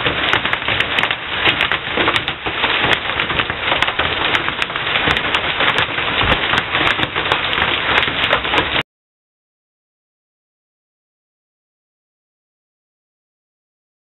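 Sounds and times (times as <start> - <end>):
hailstones striking: 0.0 - 8.8
heavy rain: 0.0 - 8.8.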